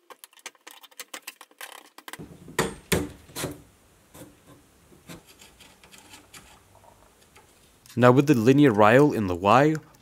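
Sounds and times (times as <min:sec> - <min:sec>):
louder knocks: 0:02.2 - 0:03.2.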